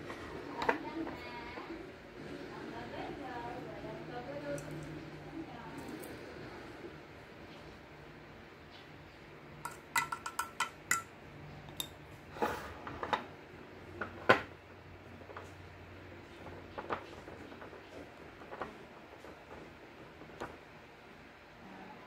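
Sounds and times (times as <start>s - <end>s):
ringing taps on metal bowl: 9.6s - 11.1s
spoon and jars clinking on bowl: 9.6s - 11.1s.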